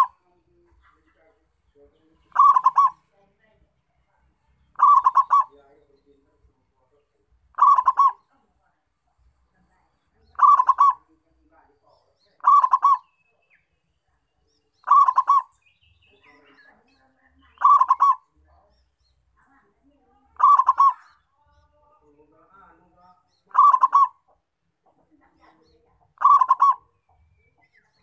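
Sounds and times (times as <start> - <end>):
dove cooing: 0.0 - 0.2, 2.3 - 3.1, 4.7 - 5.7, 7.5 - 8.3, 10.3 - 11.2, 12.4 - 13.1, 14.8 - 15.6, 17.6 - 18.3, 20.4 - 21.2, 23.5 - 24.3, 25.5 - 27.0.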